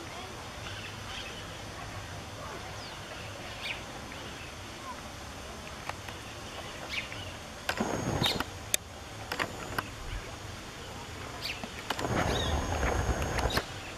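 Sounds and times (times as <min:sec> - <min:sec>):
faint outdoor background: 0:00.0 - 0:13.9
lens motor whine: 0:05.3 - 0:13.9
sharp clicks: 0:07.6 - 0:10.0, 0:11.6 - 0:13.7.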